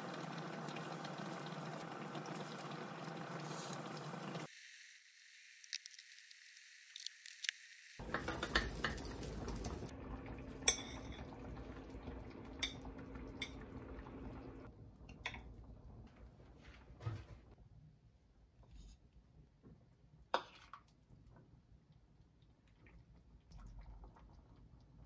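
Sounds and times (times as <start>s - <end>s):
utensils tapping on ceramic plate: 8.0s - 9.3s.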